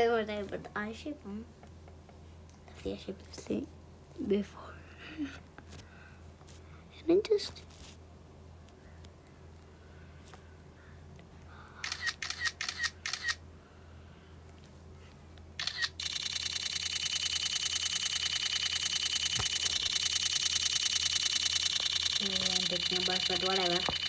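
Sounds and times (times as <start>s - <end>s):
camera shutter clicks: 11.8s - 13.4s, 15.6s - 22.2s.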